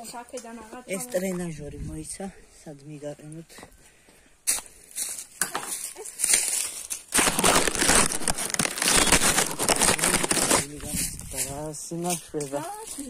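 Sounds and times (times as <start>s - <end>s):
close rustling and crackling: 5.0s - 13.0s.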